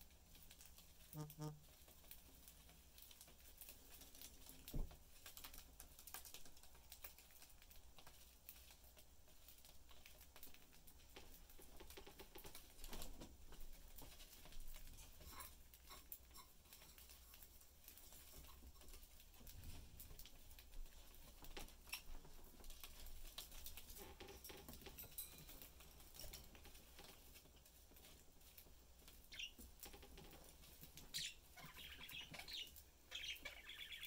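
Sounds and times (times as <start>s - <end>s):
budgies pecking seed: 28.6s - 34.0s.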